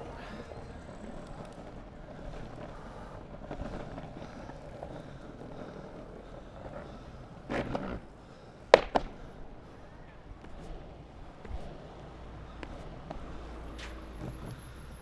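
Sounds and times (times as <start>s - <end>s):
longboard clatter: 0.0s - 15.0s
longboard wheels rolling on paving: 0.0s - 15.0s.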